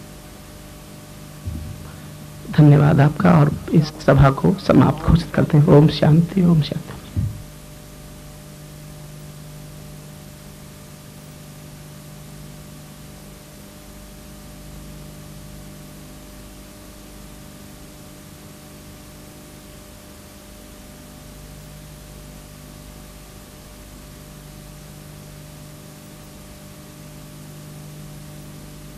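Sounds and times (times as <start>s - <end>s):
low electrical hum: 0.0s - 28.9s
tape hiss: 0.0s - 28.9s.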